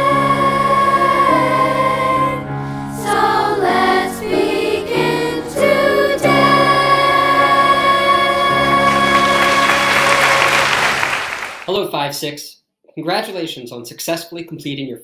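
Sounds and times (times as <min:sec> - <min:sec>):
choir singing held chords: 0:00.0 - 0:11.7.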